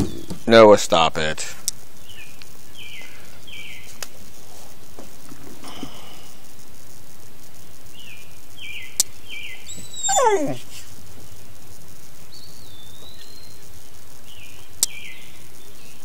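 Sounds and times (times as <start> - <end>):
outdoor background: 0.0 - 16.0
dog whining: 9.7 - 10.8.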